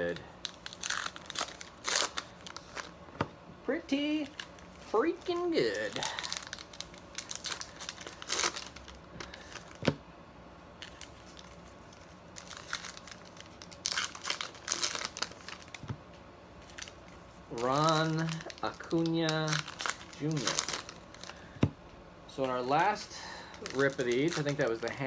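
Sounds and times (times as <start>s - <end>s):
wrapper tearing and crinkling: 0.0s - 3.0s, 4.2s - 9.8s, 10.8s - 15.8s, 16.6s - 21.4s, 23.5s - 25.0s.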